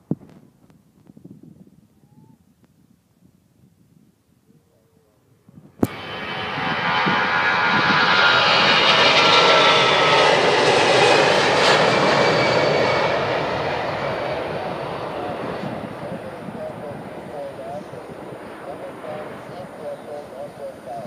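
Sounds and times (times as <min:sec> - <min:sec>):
jet roar with engine whine: 0:05.6 - 0:21.0.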